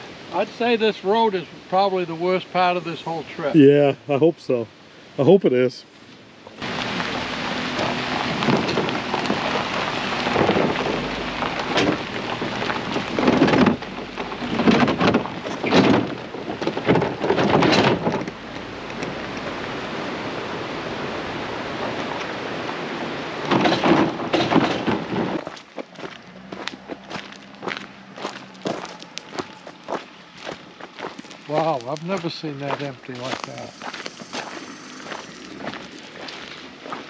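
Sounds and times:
vehicle rumbling on gravel road: 6.5s - 37.0s
wind on microphone: 6.6s - 25.5s.

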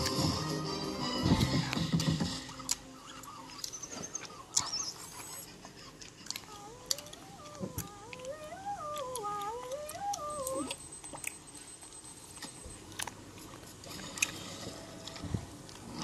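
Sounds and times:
wordless sing-song voice: 6.4s - 10.8s.

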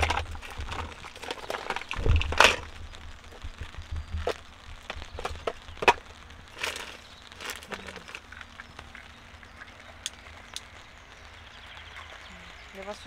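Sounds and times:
plastic tubs clicking and knocking: 0.0s - 2.8s, 3.4s - 8.4s.

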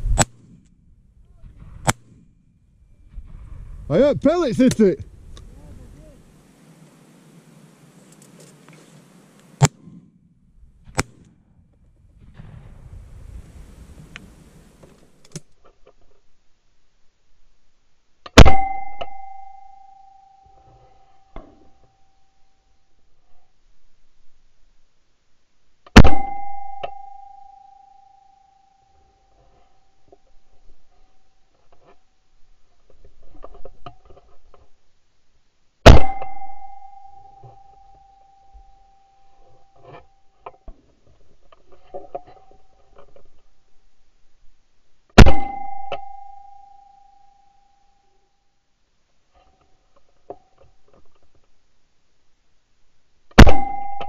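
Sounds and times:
shotgun shot: 12.2s - 13.7s, 18.4s - 18.8s, 26.0s - 26.5s, 35.8s - 36.8s, 45.2s - 45.7s, 53.4s - 54.0s
ringing tone: 18.4s - 22.4s, 26.0s - 29.2s, 35.9s - 40.3s, 45.2s - 48.2s, 53.4s - 54.0s.

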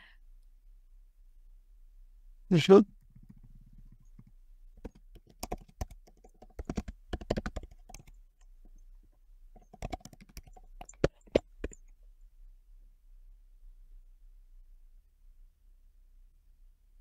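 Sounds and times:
typing on computer keyboard: 3.0s - 8.8s, 9.6s - 11.8s.

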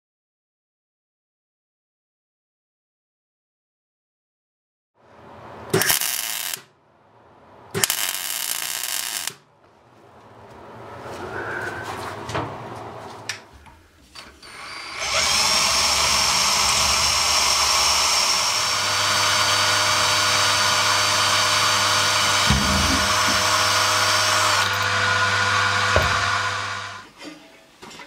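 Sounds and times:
cordless drill boring into steel: 5.8s - 6.6s, 7.8s - 9.4s, 14.4s - 27.0s.

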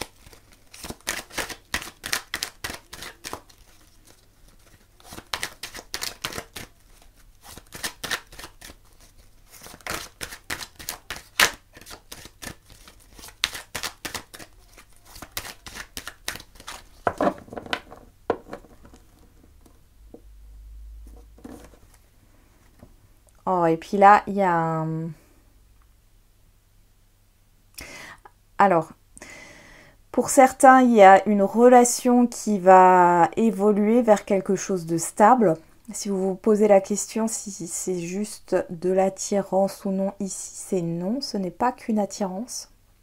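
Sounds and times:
cards being shuffled: 0.0s - 19.8s, 21.1s - 22.0s.

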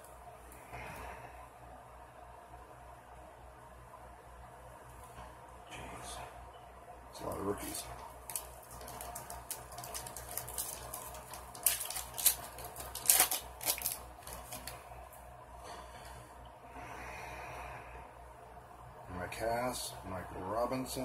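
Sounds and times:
cards rustling: 7.2s - 14.9s
foil wrapper crinkling and tearing: 8.0s - 14.9s.

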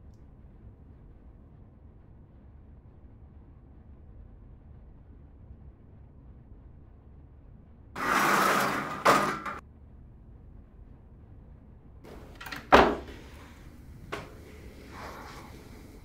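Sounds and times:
metal gate scraping and clanking: 8.0s - 9.6s
door latch clicks: 12.1s - 14.4s
wooden door thudding shut: 12.1s - 14.4s.

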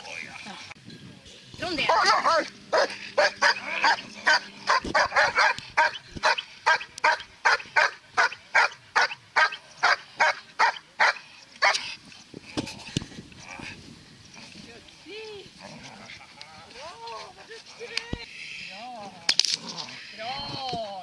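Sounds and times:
dog barking: 1.9s - 11.8s.

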